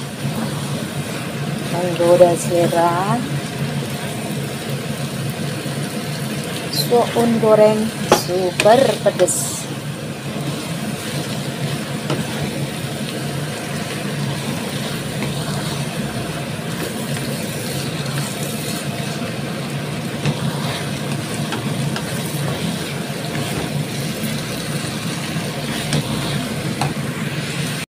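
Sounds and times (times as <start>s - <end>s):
steady low hum: 11.7s - 27.8s
spatula scraping frying pan: 13.7s - 19.2s, 20.0s - 27.8s.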